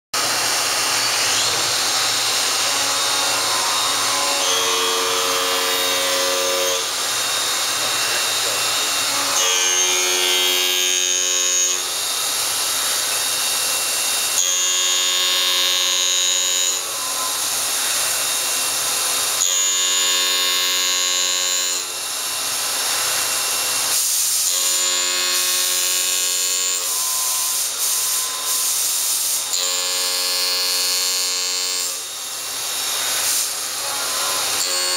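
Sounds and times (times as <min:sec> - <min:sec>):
machining spindle running: 0:07.0 - 0:09.4.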